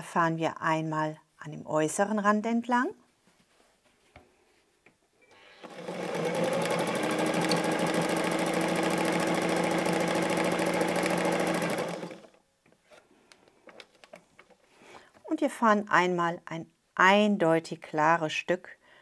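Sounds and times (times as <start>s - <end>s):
electric sewing machine stitching: 5.3s - 12.4s.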